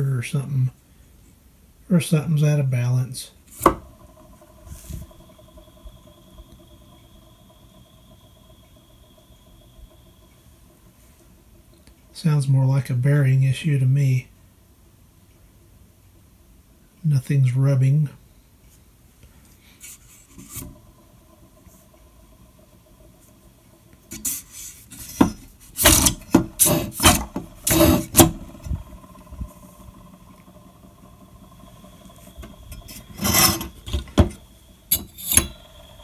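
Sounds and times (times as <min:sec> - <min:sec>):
motor wheel whirring: 0:03.4 - 0:13.7, 0:19.5 - 0:36.0
rasping scrapes: 0:24.1 - 0:28.6, 0:32.7 - 0:34.0.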